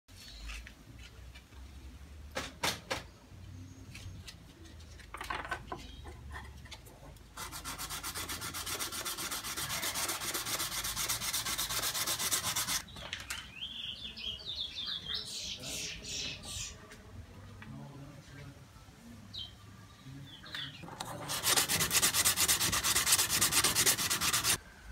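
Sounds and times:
shell being rubbed by hand: 7.4 - 12.8, 21.1 - 24.6.

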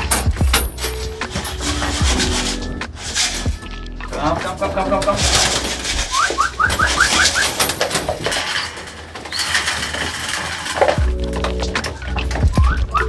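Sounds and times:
pigeon wings flapping: 4.4 - 13.0.

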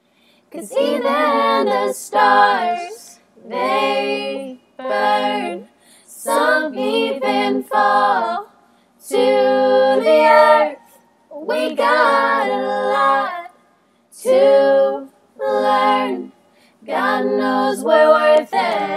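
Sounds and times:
singer breathing: 0.0 - 0.5, 5.8 - 6.1, 8.6 - 9.0, 13.7 - 14.1, 16.4 - 16.8
woman singing unaccompanied: 0.5 - 13.5, 14.2 - 18.9.

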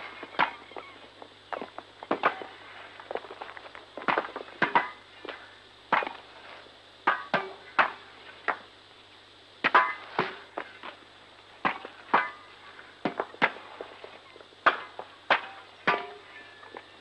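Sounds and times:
hammers striking stone: 14.6 - 16.3.

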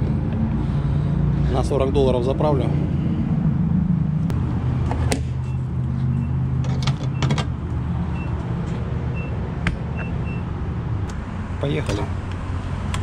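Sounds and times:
steady low hum: 0.0 - 6.6.

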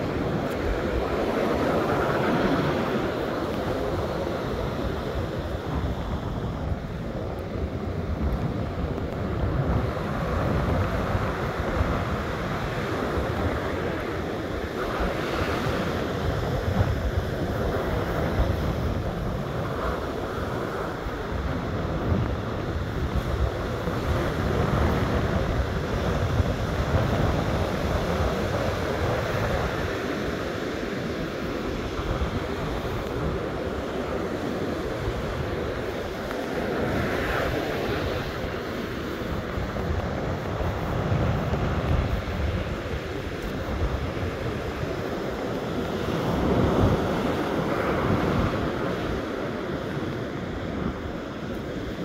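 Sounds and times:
surf breaking on beach: 0.0 - 52.0
wind buffeting microphone: 0.0 - 52.0.

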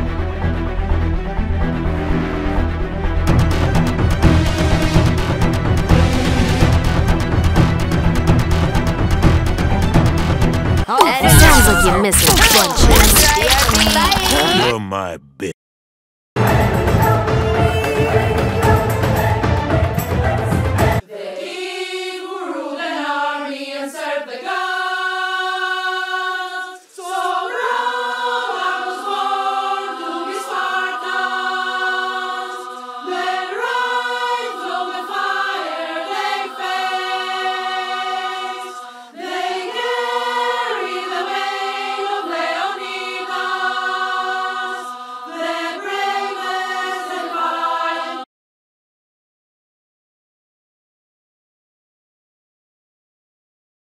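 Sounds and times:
choir singing slow chords: 16.4 - 48.3.

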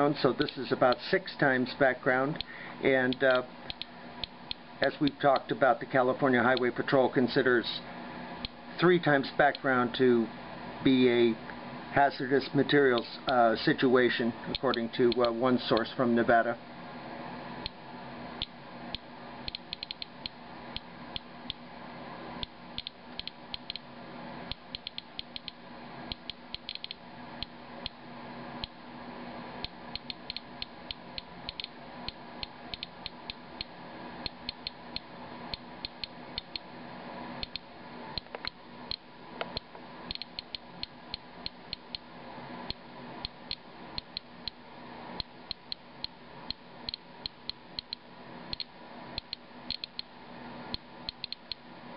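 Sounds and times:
faint steady hum: 0.0 - 51.9
geiger counter clicking: 3.1 - 5.5, 14.5 - 15.8, 19.4 - 21.6, 22.4 - 23.9, 24.5 - 28.0, 29.6 - 33.7, 34.3 - 36.6, 37.4 - 37.6, 38.2 - 42.0, 45.2 - 50.1, 50.7 - 51.6.

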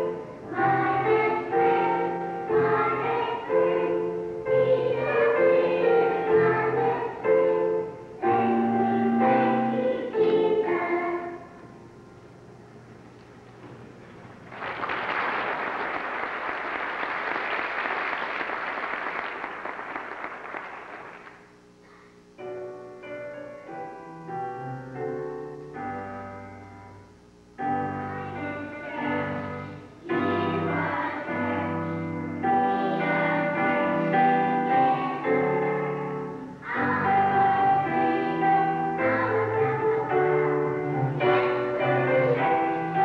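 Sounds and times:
children's choir singing: 0.0 - 11.8, 27.6 - 43.0
keyboard chords: 0.0 - 14.0, 22.4 - 43.0
audience applauding: 14.1 - 21.5.

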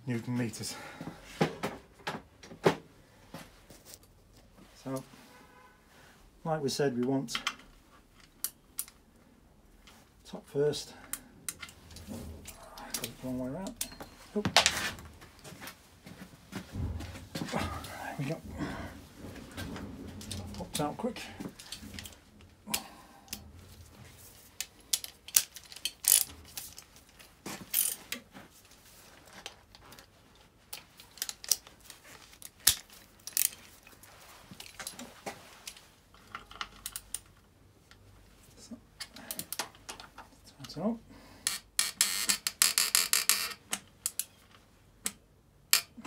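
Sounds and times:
hand tools clinking: 11.5 - 14.5
ratchet wrench clicking: 24.9 - 26.3.

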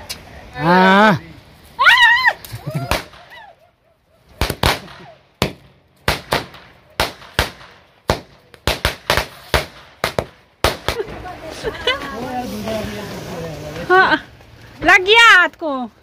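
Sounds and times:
firecracker bangs: 2.8 - 3.4, 4.4 - 11.3.

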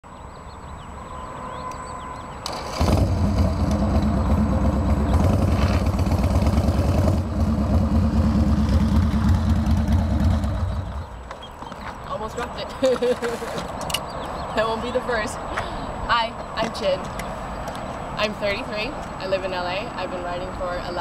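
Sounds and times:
motorcycle engine running: 2.7 - 11.2.

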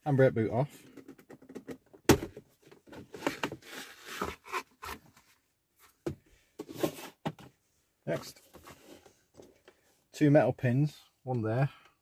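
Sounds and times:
plastic scraping and rattling: 0.9 - 5.2.

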